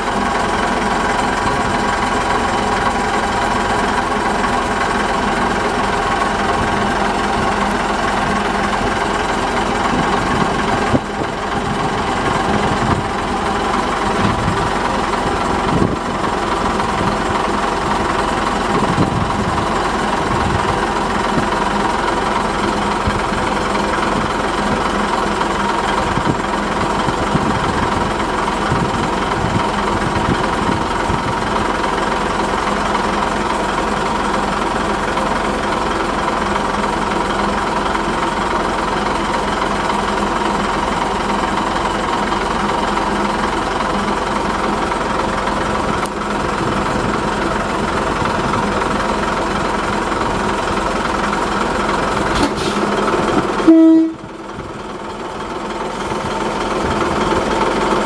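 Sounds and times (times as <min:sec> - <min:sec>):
diesel locomotive engine running: 0:00.0 - 0:58.0
wheels knocking on track: 0:00.0 - 0:58.0.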